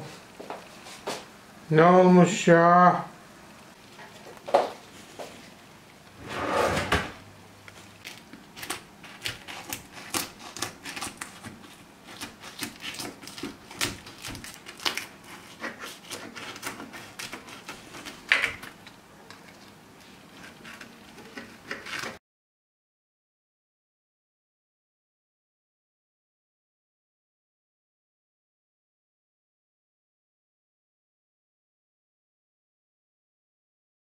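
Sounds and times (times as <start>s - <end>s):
crackles and crunches: 7.6s - 22.2s
knife cutting crisp pastry: 8.0s - 19.6s, 20.3s - 22.2s.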